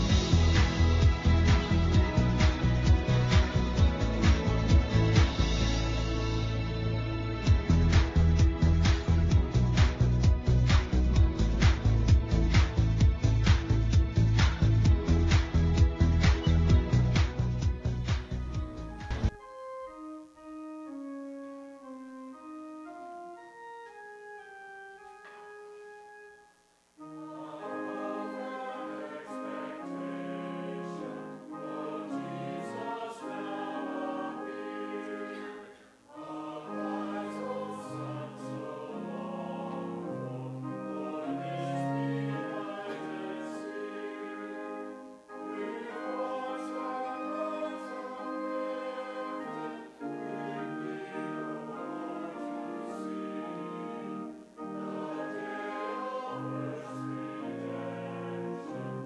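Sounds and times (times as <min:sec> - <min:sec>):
church choir singing: 0:00.0 - 0:11.8, 0:27.0 - 0:59.0.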